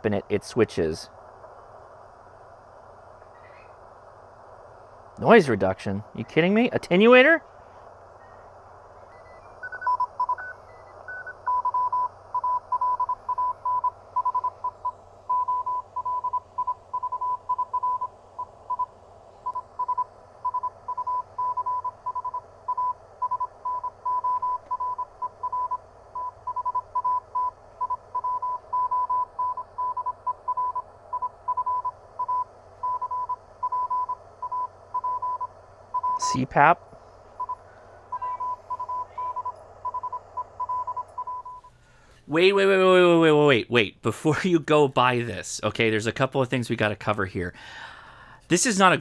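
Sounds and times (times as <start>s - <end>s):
radio receiver hiss: 0.0s - 49.0s
high-pitched beeps: 37.4s - 41.7s
morse code tone: 37.4s - 41.7s.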